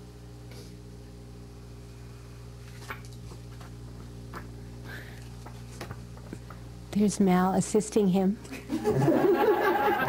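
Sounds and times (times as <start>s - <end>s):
low electrical hum: 0.0s - 10.0s.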